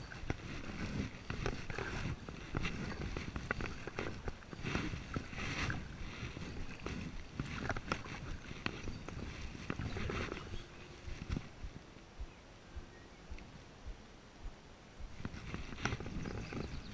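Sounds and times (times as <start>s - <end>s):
kayak paddle splashing water: 0.0s - 11.5s
paddle clicks: 0.1s - 11.7s, 15.2s - 16.8s.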